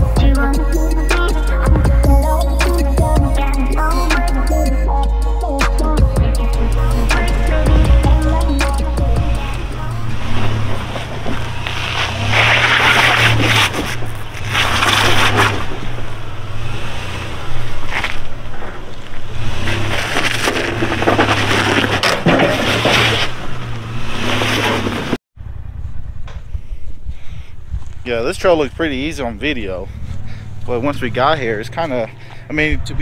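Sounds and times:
engine running low: 0.0s - 33.0s
tyres grinding over rock: 6.8s - 25.2s.

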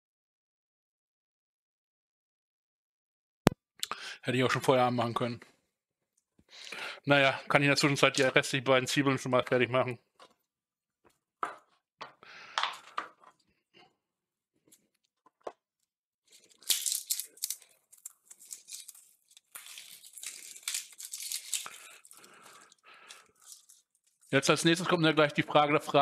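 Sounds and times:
onion skins crackling and tearing: 16.3s - 24.4s.

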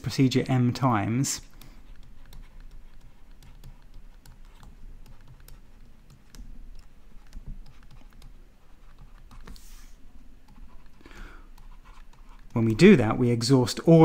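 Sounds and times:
stylus tapping on tablet screen: 1.6s - 9.8s.

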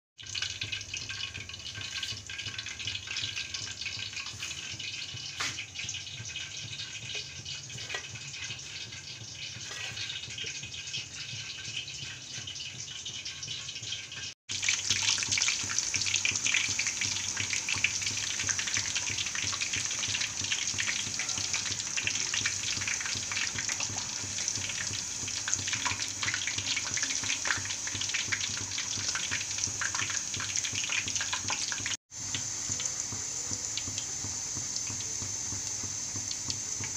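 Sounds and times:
hot oil sizzling and crackling: 0.2s - 36.9s.

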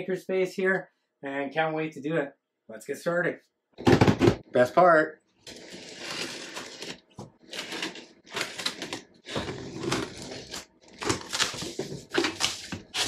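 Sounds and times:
cardboard box scraping and tearing: 5.4s - 13.0s.

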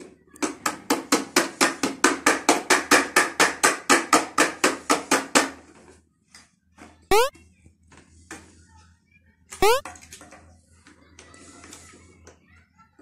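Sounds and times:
plastic toy hammering knocks: 0.4s - 5.6s.

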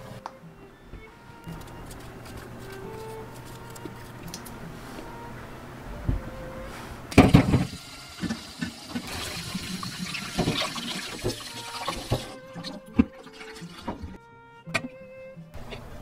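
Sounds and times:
tap water running: 7.1s - 14.2s.

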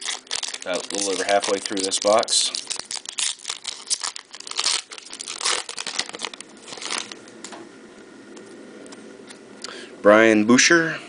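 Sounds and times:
wrapper crinkling and tearing: 0.0s - 7.3s.

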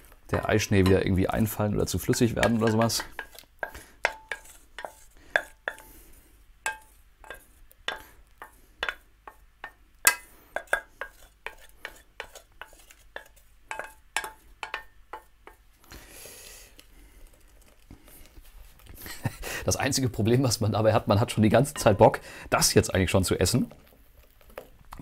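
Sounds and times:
spoon scraping metal pot: 0.3s - 6.1s, 6.7s - 15.6s, 21.6s - 22.2s.

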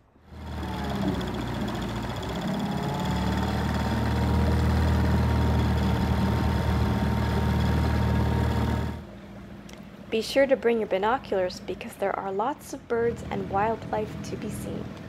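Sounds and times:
outboard motor running: 0.3s - 9.0s.

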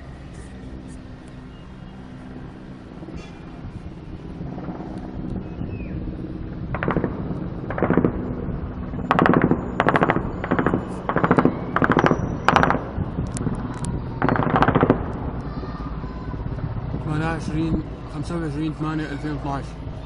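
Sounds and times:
steady low rumble: 0.0s - 20.0s
automatic gunfire bursts: 7.7s - 8.2s, 9.1s - 13.0s, 14.2s - 15.1s.

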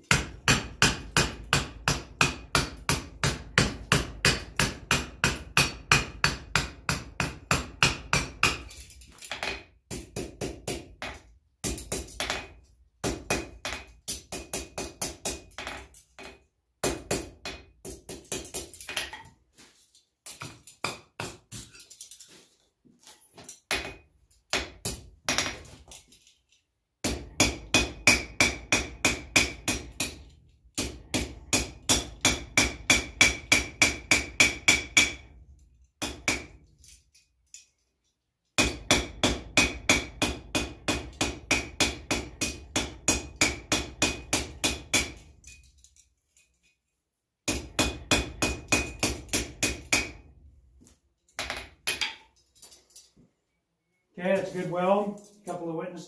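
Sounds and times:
hammer striking steel on anvil: 0.1s - 8.8s, 27.0s - 35.3s, 38.6s - 45.2s, 47.5s - 50.2s.

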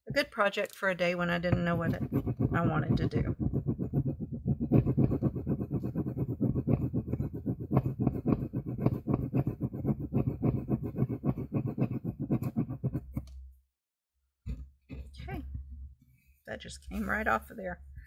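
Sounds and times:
rapid scrubbing on paper: 1.6s - 13.2s.

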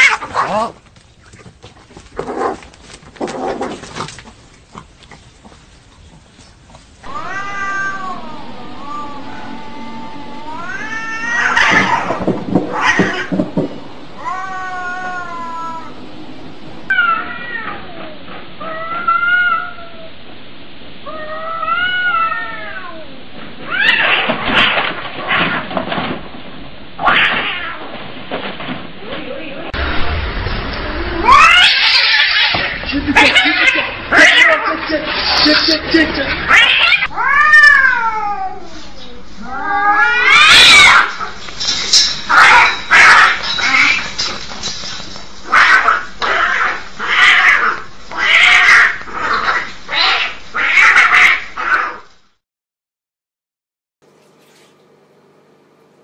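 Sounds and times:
cats spitting and scuffling: 0.0s - 8.4s, 39.4s - 51.9s
cat yowling: 7.0s - 13.4s, 14.2s - 16.0s, 16.9s - 20.1s, 31.2s - 34.7s, 36.4s - 38.8s, 39.4s - 41.4s, 45.5s - 52.0s.

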